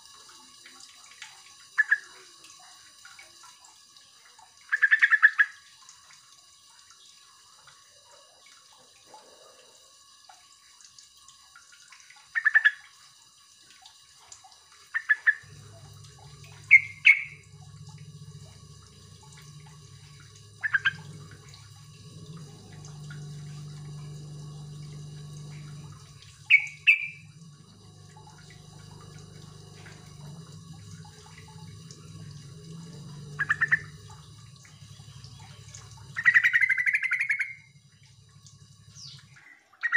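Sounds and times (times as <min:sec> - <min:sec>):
low steady hum: 0:13.7 - 0:39.9
bird giving sharp calls: 0:16.7 - 0:17.4, 0:26.4 - 0:27.2.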